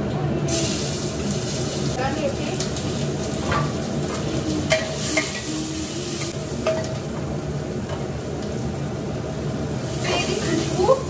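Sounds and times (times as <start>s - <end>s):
seeds sizzling in hot ghee: 0.5s - 11.0s.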